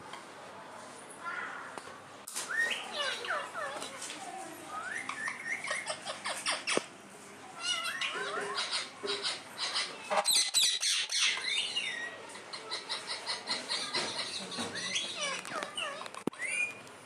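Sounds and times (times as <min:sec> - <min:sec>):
parakeets chattering: 0:02.5 - 0:04.0, 0:04.7 - 0:06.9, 0:07.6 - 0:16.8
parakeets screeching: 0:04.8 - 0:06.8, 0:07.6 - 0:16.8.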